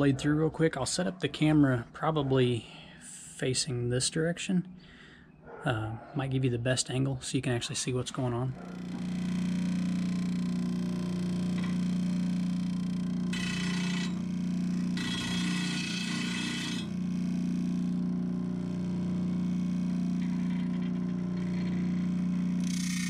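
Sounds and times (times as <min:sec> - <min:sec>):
electric motor hum: 0:08.4 - 0:23.0
blade grinding on disc: 0:13.2 - 0:17.1, 0:18.8 - 0:23.0.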